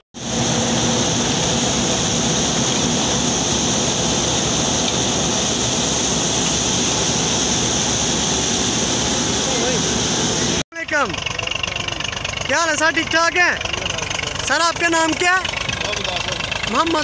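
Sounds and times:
high whine: 0:00.2 - 0:11.0
threshing machine running: 0:00.2 - 0:17.0.

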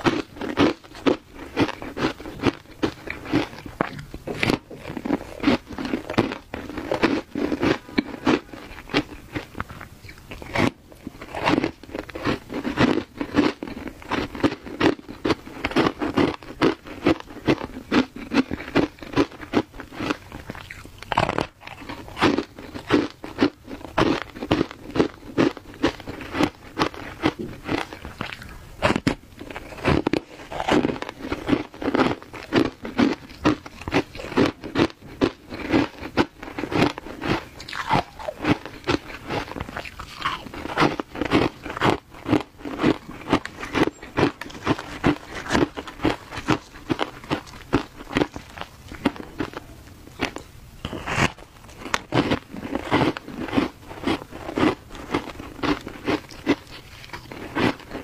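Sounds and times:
shaved ice crunching: 0:10.3 - 0:49.6.

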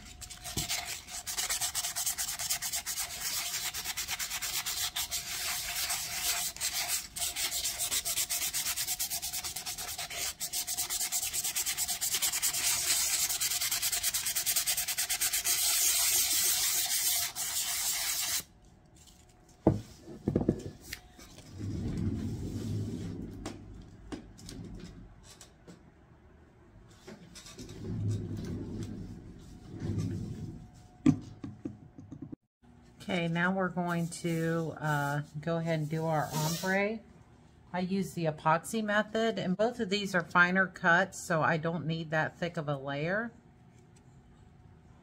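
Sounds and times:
sandpaper scuffing metal tumbler: 0:00.0 - 0:18.5, 0:33.9 - 0:36.8.

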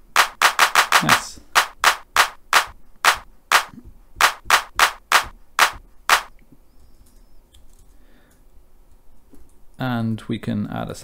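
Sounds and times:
drum machine hand claps: 0:00.0 - 0:06.3.

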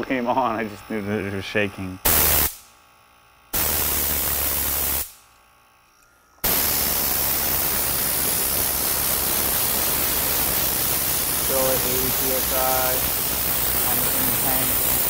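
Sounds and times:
compressed air hissing: 0:02.0 - 0:02.7, 0:03.5 - 0:05.2, 0:06.4 - 0:15.0.

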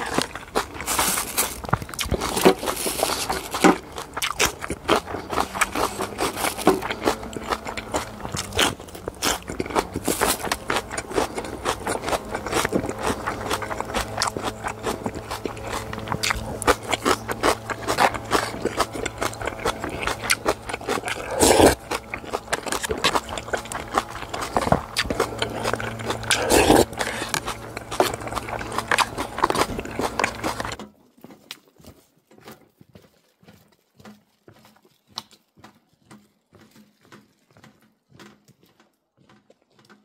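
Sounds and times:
scraping food container: 0:00.0 - 0:30.8
person chewing crunchy food: 0:00.0 - 0:40.0.

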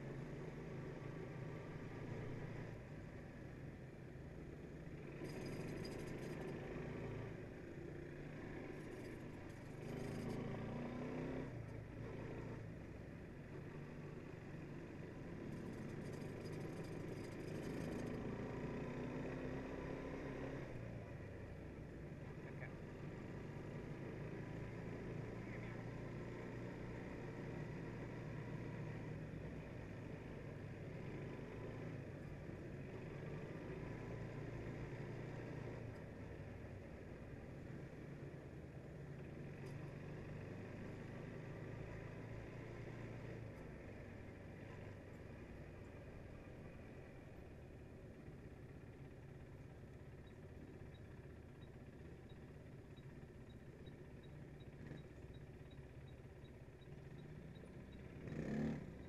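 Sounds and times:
quad bike engine running: 0:04.8 - 0:59.0.

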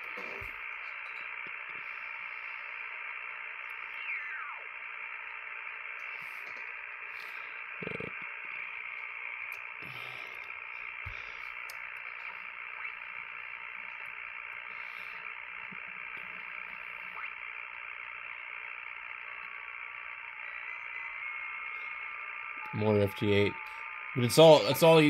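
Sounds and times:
faint digital tones: 0:00.0 - 0:25.0
radio receiver static: 0:00.0 - 0:25.0.

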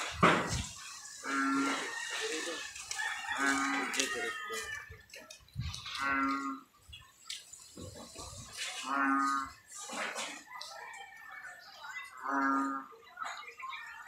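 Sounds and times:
animal calling: 0:00.9 - 0:04.7.

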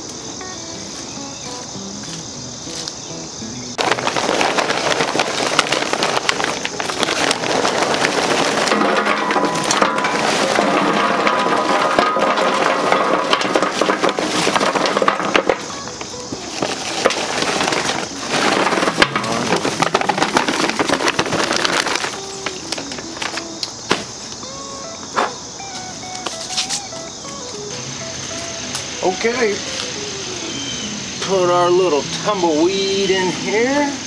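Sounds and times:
charcoal pouring into metal hopper: 0:03.8 - 0:23.4, 0:29.0 - 0:29.6.

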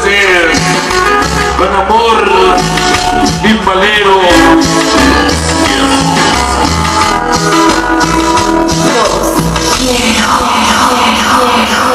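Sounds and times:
loud latin dance music: 0:00.0 - 0:11.9.

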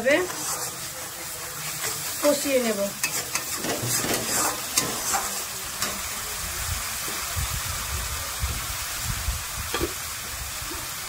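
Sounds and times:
spatula scraping a pan: 0:00.0 - 0:06.1
paste sizzling in hot oil: 0:00.0 - 0:11.0.

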